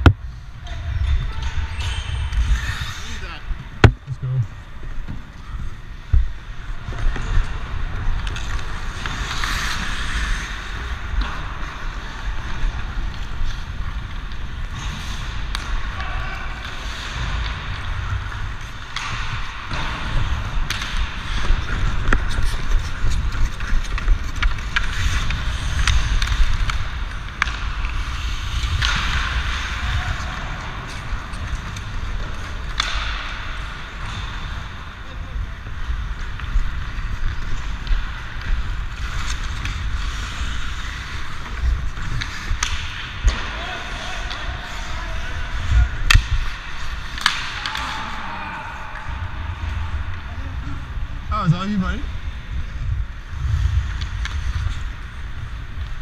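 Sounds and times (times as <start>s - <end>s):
hockey sticks and puck clacking: 0.0s - 56.0s
skate blades scraping on ice: 1.8s - 4.5s, 6.6s - 34.9s, 35.6s - 50.0s
wind rumble on microphone: 52.2s - 56.0s.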